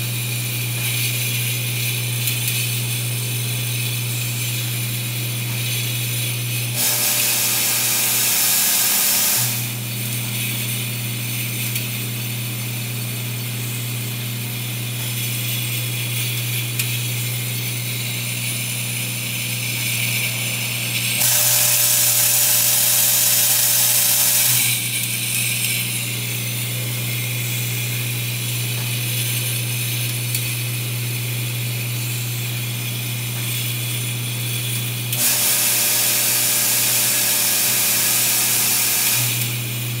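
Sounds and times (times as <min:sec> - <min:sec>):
vibratory feeder humming: 0:00.0 - 0:40.0
loud hiss: 0:06.8 - 0:09.7
glass vials rattling and clinking: 0:14.8 - 0:30.5.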